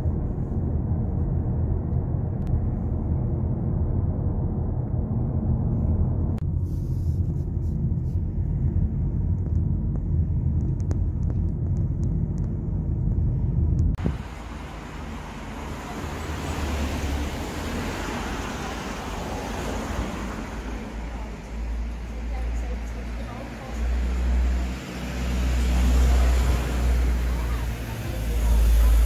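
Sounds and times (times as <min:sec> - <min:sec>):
passing traffic: 0:00.0 - 0:29.0
road and engine rumble in car: 0:00.0 - 0:29.0
street hiss: 0:14.0 - 0:22.8.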